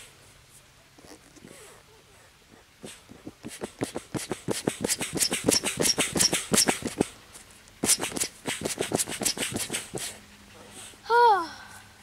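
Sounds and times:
small squeaks of pump: 0:01.0 - 0:01.8, 0:02.9 - 0:10.1
foot pump puffing air: 0:02.8 - 0:07.1, 0:07.8 - 0:11.0.

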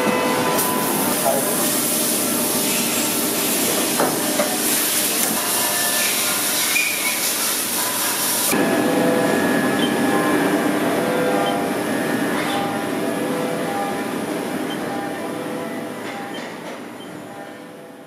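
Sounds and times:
coolant spray hissing: 0:00.8 - 0:08.5.

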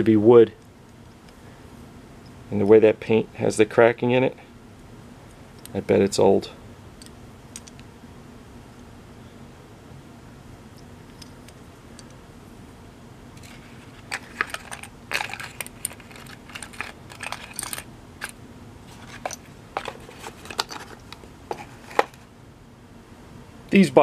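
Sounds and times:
cardboard boxes set on wooden bench: 0:13.4 - 0:22.3.

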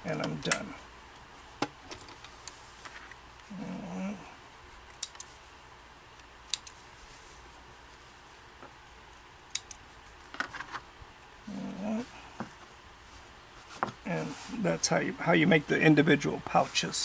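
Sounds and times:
thread snips clipping: 0:06.5 - 0:06.8.

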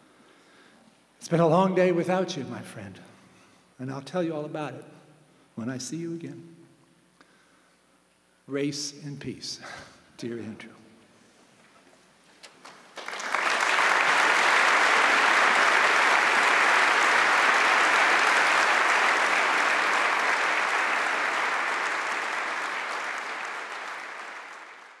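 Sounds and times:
audience applauding: 0:12.4 - 0:25.0.

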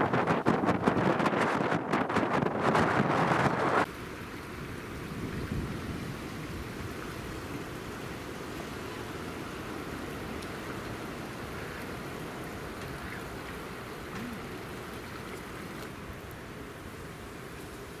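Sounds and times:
wind buffeting microphone: 0:00.0 - 0:03.9, 0:05.0 - 0:08.0
steady outdoor hiss: 0:03.8 - 0:18.0.

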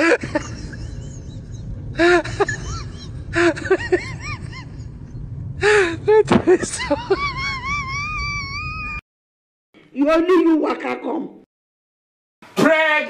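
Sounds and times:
steady low rumble: 0:00.0 - 0:09.0.

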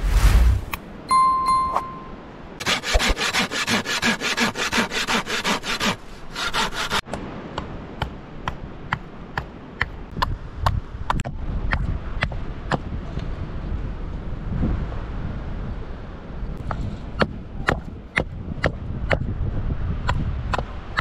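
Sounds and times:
hand saw cutting wood: 0:02.6 - 0:07.0.

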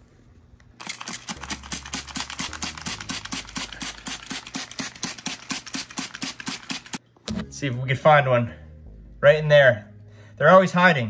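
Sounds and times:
spray bottle hissing sprays: 0:00.8 - 0:07.0.

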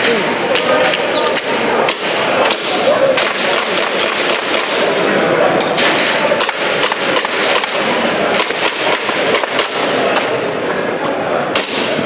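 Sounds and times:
hall background noise: 0:00.0 - 0:12.0
airsoft pistol shots: 0:01.9 - 0:04.9, 0:05.8 - 0:10.0.

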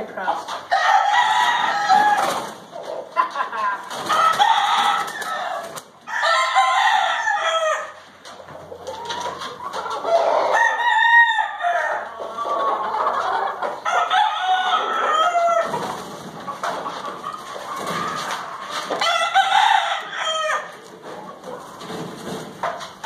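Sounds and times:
roosters crowing: 0:00.6 - 0:02.7, 0:03.8 - 0:08.2, 0:09.8 - 0:20.9.

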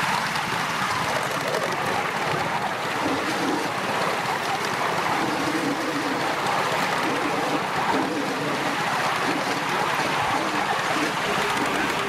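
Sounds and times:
model steam train running on rails: 0:00.0 - 0:12.0.

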